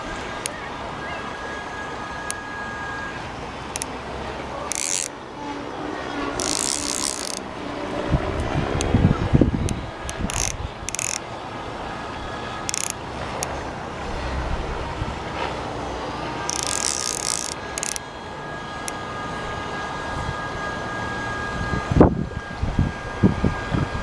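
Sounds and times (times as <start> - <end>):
river riffle: 0.0 - 7.9, 9.6 - 18.1
fishing reel ratchet buzzing: 3.7 - 4.0, 4.7 - 5.2, 6.4 - 7.5, 9.7 - 11.3, 12.6 - 13.6, 16.5 - 18.0.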